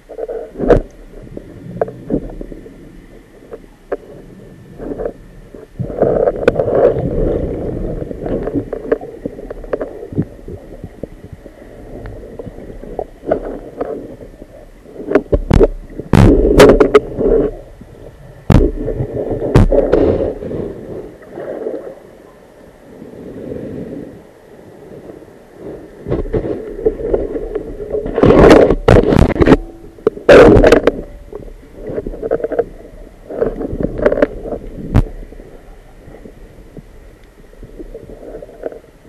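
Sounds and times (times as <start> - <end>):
muffled underwater water rumble: 0.0 - 39.0
sharp knocks underwater: 15.0 - 17.6, 18.5 - 20.4, 26.1 - 32.7, 33.3 - 35.2.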